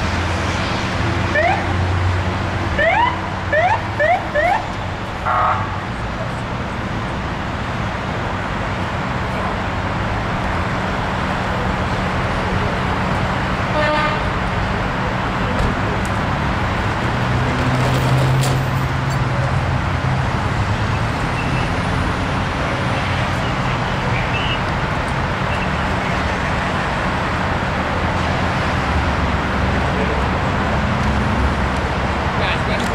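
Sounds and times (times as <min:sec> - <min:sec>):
engines running nearby: 0:00.0 - 0:32.9
highway traffic passing: 0:00.0 - 0:32.9
vehicle horn toot: 0:13.7 - 0:14.3.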